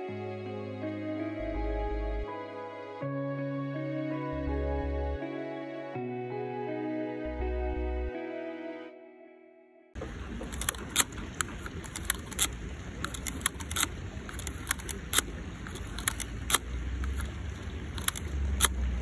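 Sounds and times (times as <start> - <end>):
film back winding clicks: 10.4 - 18.8.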